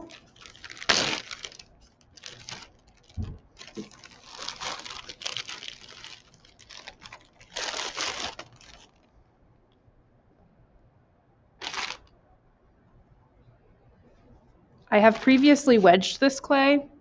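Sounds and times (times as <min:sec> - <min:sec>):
wrapping rustling and crinkling: 0:00.0 - 0:09.2, 0:11.6 - 0:12.1, 0:15.0 - 0:16.0
low thump: 0:03.2 - 0:03.5.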